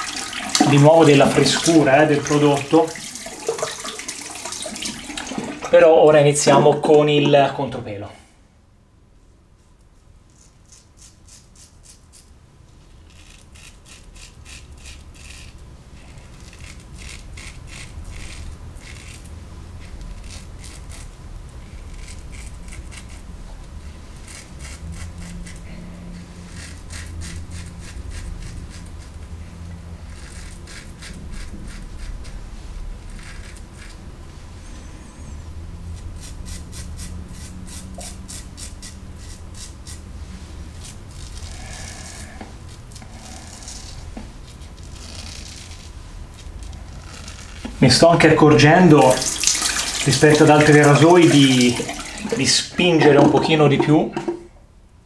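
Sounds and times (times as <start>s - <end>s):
low steady hum: 0.0s - 55.0s
razor scratching stubble: 10.3s - 12.3s, 13.0s - 34.0s, 35.9s - 47.9s.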